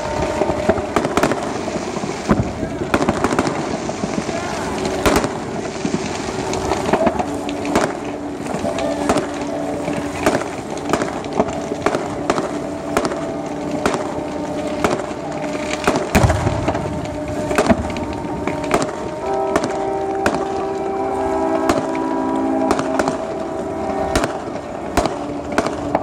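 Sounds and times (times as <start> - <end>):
deep firework boom: 0.0 - 9.3, 15.8 - 20.6
fireworks bangs and cracks: 0.0 - 26.0.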